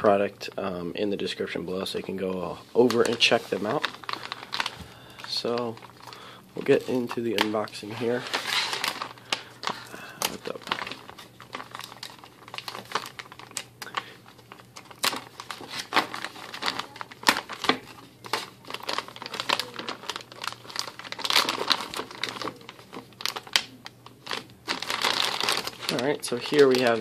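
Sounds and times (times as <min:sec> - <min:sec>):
plastic bag crinkling: 0:00.0 - 0:27.0.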